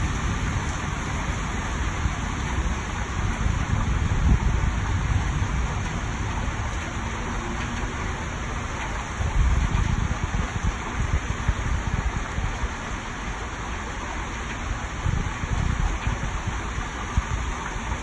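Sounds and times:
heavy rain hissing: 0.0s - 18.0s.

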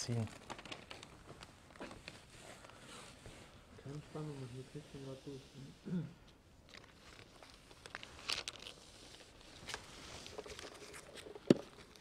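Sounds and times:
plastic film crinkling: 0.0s - 2.8s, 6.7s - 12.0s.

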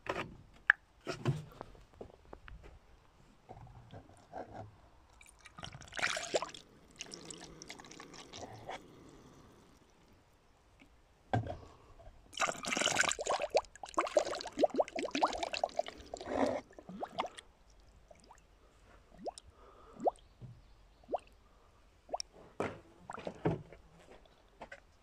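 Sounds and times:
liquid pouring and gurgling: 5.2s - 10.0s, 12.4s - 18.4s, 19.2s - 19.4s.

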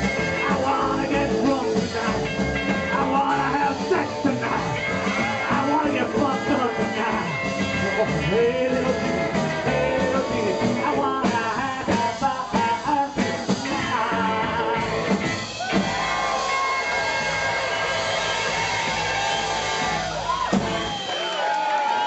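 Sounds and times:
man singing: 0.0s - 15.2s
acoustic and electric guitars: 0.0s - 21.1s
drums: 0.0s - 22.0s.

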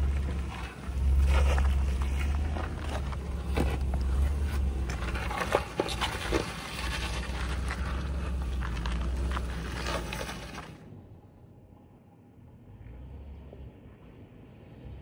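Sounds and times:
knocks and crunches over rough ground: 0.0s - 10.9s
low engine drone: 0.0s - 15.0s.

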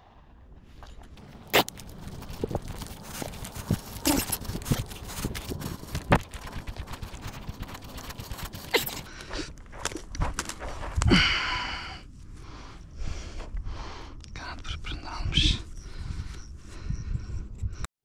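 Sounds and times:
rushing rustling burst: 1.2s - 9.1s
footsteps on dry grass and dirt: 1.2s - 12.5s.

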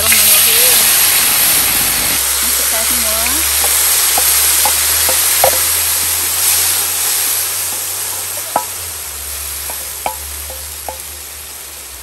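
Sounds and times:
paste sizzling in hot oil: 0.0s - 12.0s
wooden spoon knocking wok: 3.2s - 11.3s.

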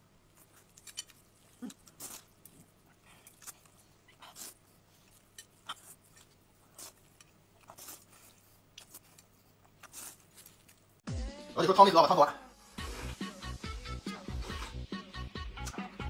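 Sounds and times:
slurping and chewing noodles: 0.3s - 11.0s, 12.8s - 16.0s.

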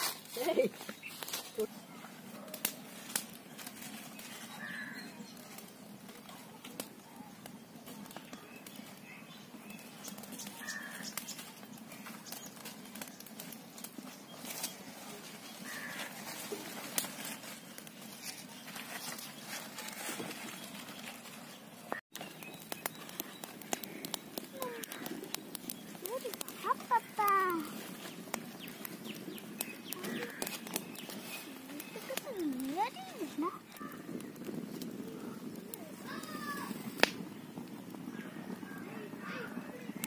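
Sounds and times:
open fire crackling: 0.0s - 40.0s
sharp pops from fire: 2.3s - 14.9s, 21.9s - 40.0s.

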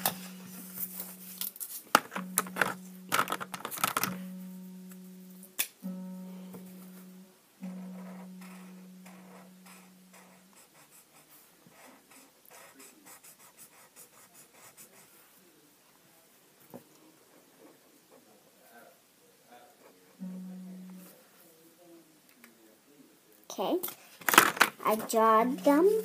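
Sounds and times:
low plucked string note: 0.0s - 10.6s, 20.2s - 21.3s
marker scratching on paper: 7.7s - 15.2s.

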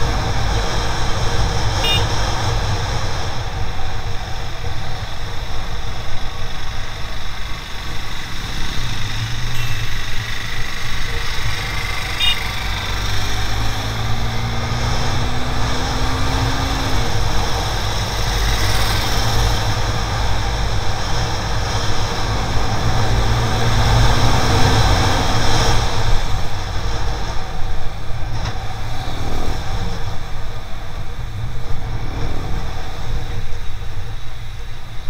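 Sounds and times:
motorcycle engine revving: 0.0s - 27.6s.

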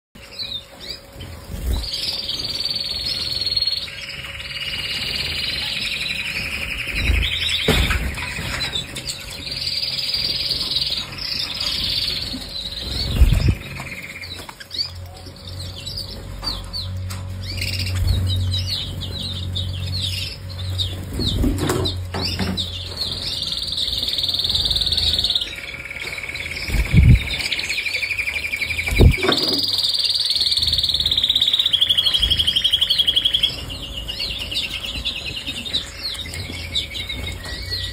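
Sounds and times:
canaries singing: 0.2s - 37.9s
short low thumps: 28.9s - 29.2s.

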